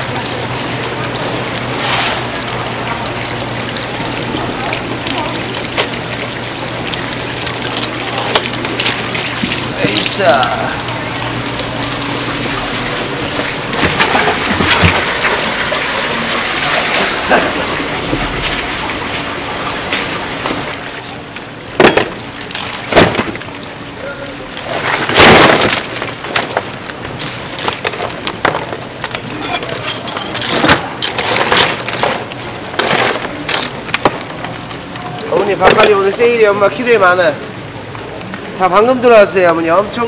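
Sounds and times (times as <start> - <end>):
water spattering and splashing: 0.0 - 40.0.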